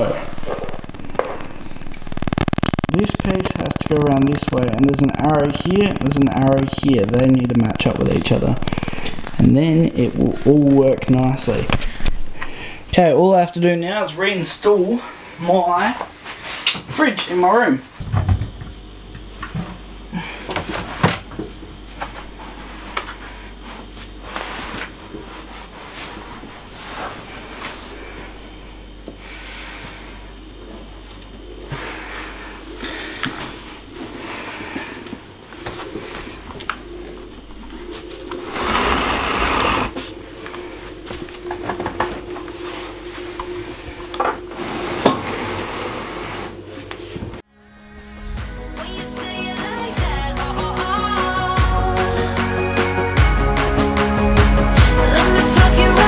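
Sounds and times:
steady low hum: 0:00.0 - 0:56.0
fridge knocks and bumps: 0:18.0 - 0:18.8.

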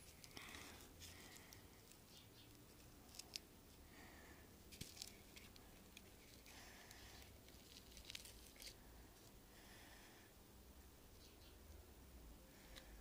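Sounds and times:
faint clicks and rustles: 0:00.0 - 0:03.8, 0:04.6 - 0:09.4.

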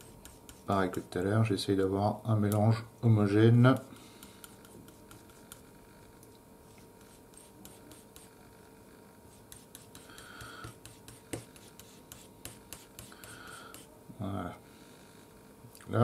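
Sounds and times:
palette knife scraping: 0:04.2 - 0:05.6, 0:09.3 - 0:13.9.

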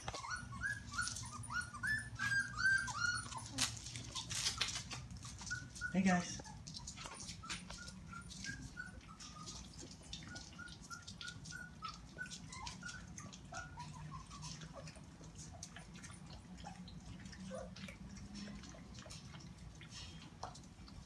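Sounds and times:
puppies lapping at bowls: 0:00.0 - 0:21.0
puppies squeaking and whimpering: 0:00.0 - 0:21.0.

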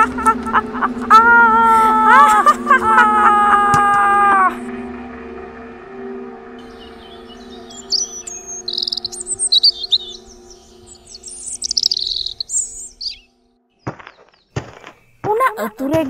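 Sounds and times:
birds chirping and twittering: 0:05.0 - 0:16.0.

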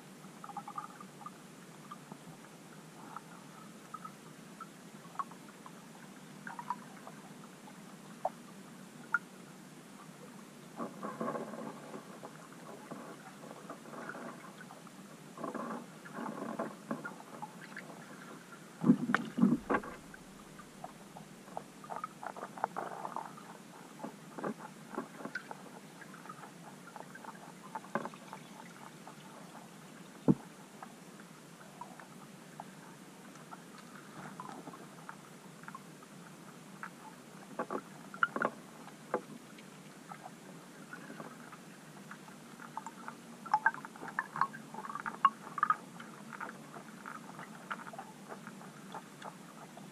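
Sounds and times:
faint underwater hiss: 0:00.0 - 0:49.9
underwater gurgling: 0:00.3 - 0:09.4, 0:10.0 - 0:49.9
underwater clicks and taps: 0:18.8 - 0:20.1, 0:30.2 - 0:30.4, 0:37.6 - 0:39.7
knocks underwater: 0:18.8 - 0:20.2.

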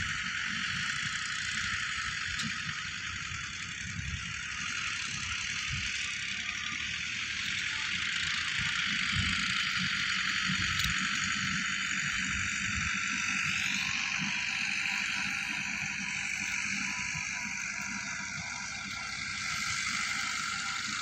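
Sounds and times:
distant tractor engines rumbling: 0:00.0 - 0:21.0
high-pitched buzz: 0:04.6 - 0:21.0.

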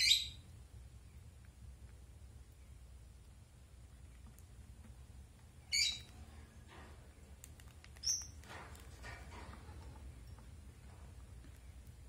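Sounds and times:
lovebird chirping: 0:00.0 - 0:00.4, 0:05.6 - 0:06.2, 0:08.0 - 0:08.4.

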